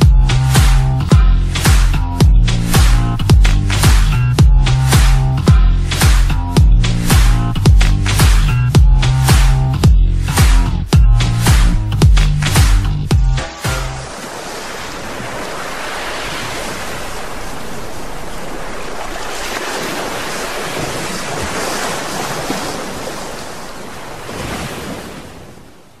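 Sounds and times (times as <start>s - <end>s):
ocean waves: 13.4s - 26.0s.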